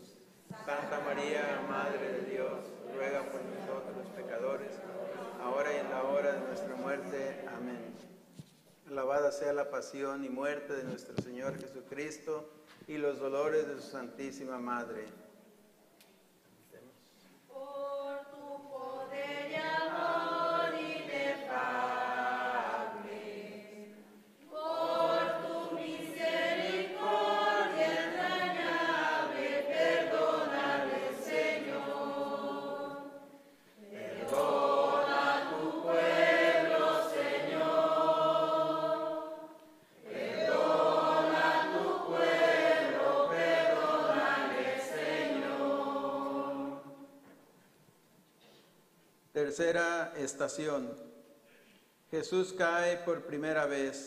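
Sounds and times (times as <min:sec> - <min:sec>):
congregation singing a hymn: 0:00.0 - 0:08.3, 0:17.5 - 0:47.6.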